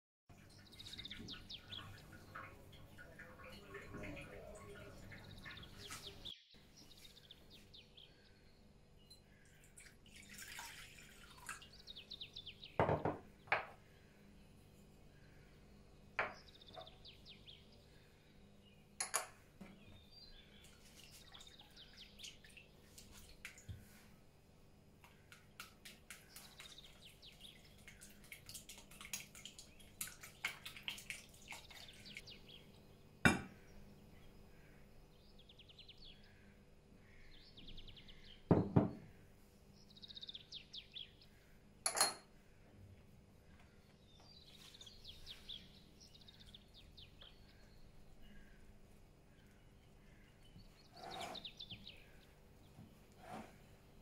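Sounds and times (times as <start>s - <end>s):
birds chirping: 0.3s - 24.1s, 25.0s - 42.2s, 43.5s - 54.0s
utensils clinking on glass: 41.8s - 42.3s.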